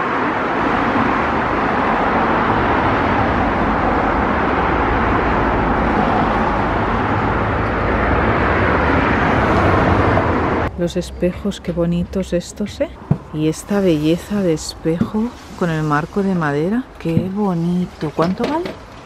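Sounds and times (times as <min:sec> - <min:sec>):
busy road traffic: 0:00.0 - 0:19.0.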